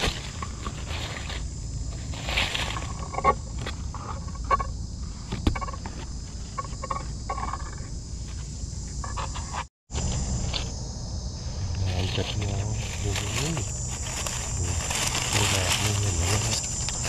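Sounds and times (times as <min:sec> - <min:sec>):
dry leaves rustling and crackling: 0:00.0 - 0:03.8, 0:11.4 - 0:17.0
high insect drone: 0:00.0 - 0:17.0.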